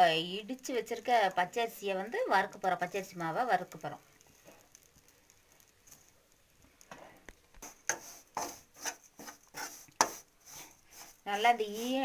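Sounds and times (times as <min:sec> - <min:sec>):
metal spoon scraping rice flour: 0:07.6 - 0:12.0.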